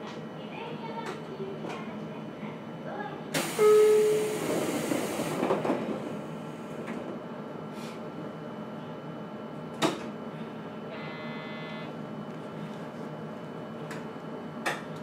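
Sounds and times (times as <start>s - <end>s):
train doors sliding shut: 3.3s - 7.2s.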